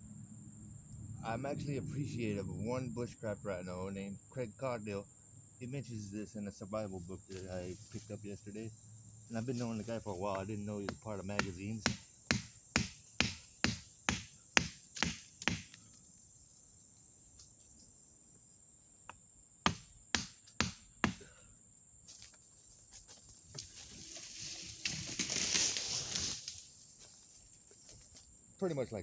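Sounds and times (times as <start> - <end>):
insect buzz: 0.0 - 1.3, 3.0 - 28.9
tree falling through branches: 23.5 - 26.8.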